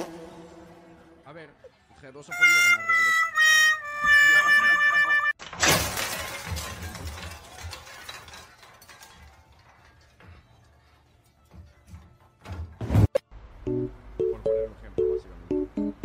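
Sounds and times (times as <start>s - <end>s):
loud crash: 5.6s - 8.4s.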